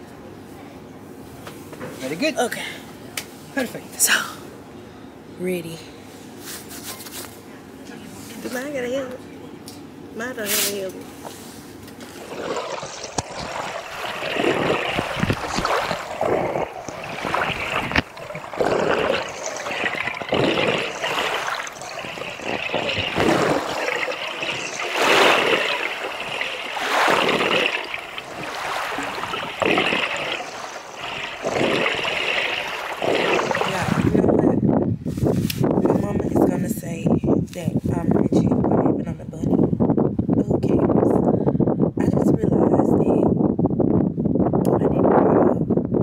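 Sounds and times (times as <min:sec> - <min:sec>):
gurgling water: 0:12.0 - 0:34.6
exhaled bubbles rushing: 0:12.1 - 0:34.4.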